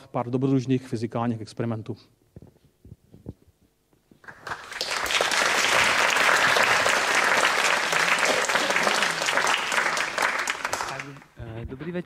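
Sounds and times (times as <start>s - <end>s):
audience applauding: 4.2s - 11.4s.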